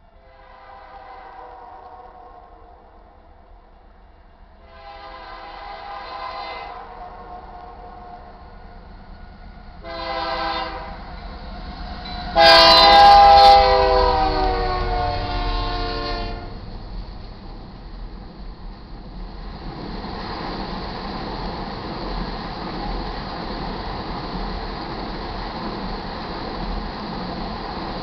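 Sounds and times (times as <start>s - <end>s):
train rumble: 0.0s - 28.0s
locomotive air horn blasts: 0.2s - 2.7s, 4.6s - 8.5s, 9.8s - 11.0s, 12.3s - 16.6s.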